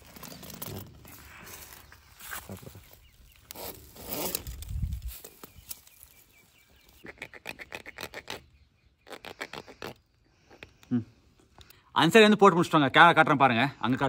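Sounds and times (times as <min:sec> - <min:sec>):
plastic hose rubbing and scraping: 0:00.0 - 0:06.2, 0:06.8 - 0:10.8.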